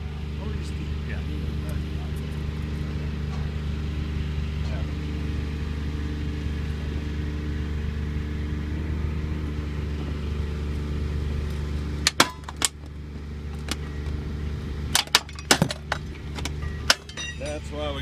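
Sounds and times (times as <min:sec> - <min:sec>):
engine running: 0:00.0 - 0:18.0
pipe cracking and popping: 0:11.5 - 0:14.2.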